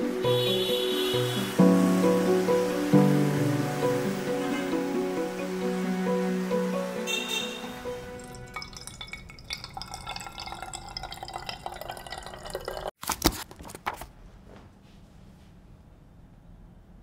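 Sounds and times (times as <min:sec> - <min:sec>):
liquid pouring into bottle: 0:08.2 - 0:12.9.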